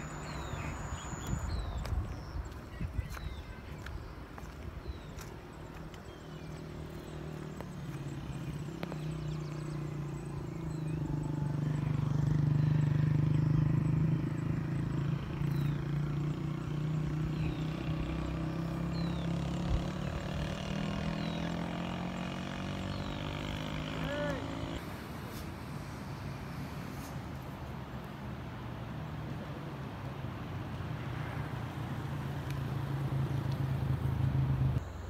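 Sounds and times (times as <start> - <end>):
engine hum: 0.0 - 2.5, 4.2 - 35.0
faint high chirps: 0.0 - 4.0.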